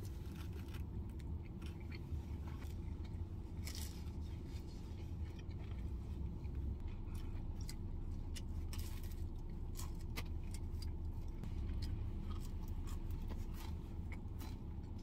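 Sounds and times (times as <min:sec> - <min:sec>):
low hum inside car: 0:00.0 - 0:15.0
chewing: 0:00.2 - 0:15.0.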